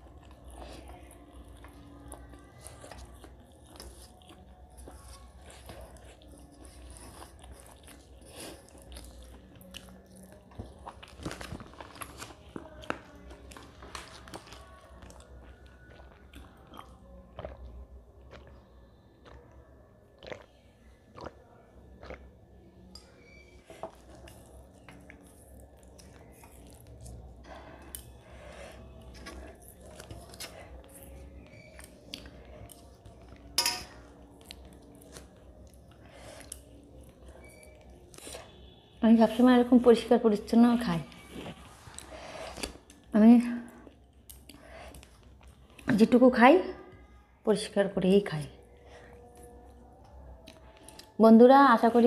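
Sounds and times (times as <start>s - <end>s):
chewing and mouth smacks: 0.0s - 22.4s, 23.8s - 28.2s, 28.8s - 38.8s, 49.1s - 51.1s.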